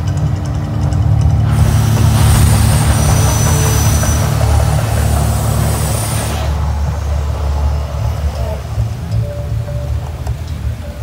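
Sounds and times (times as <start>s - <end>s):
deep rumble: 0.0s - 11.0s
jets rushing hiss: 1.4s - 9.6s.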